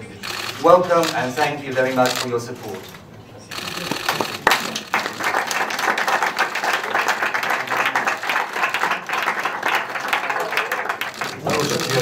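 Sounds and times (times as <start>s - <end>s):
crowd applauding: 3.5s - 12.0s.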